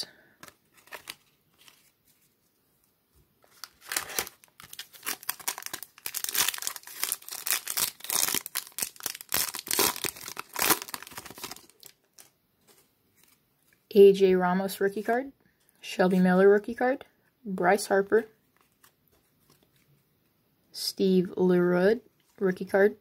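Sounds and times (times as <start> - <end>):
foil wrapper tearing and crinkling: 0.4 - 1.8, 3.5 - 12.3.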